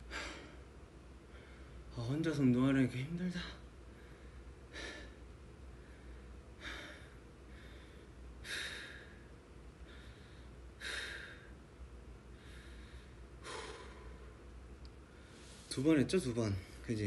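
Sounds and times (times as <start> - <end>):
man breathing hard: 0.0 - 0.7, 3.9 - 11.6, 12.3 - 14.4.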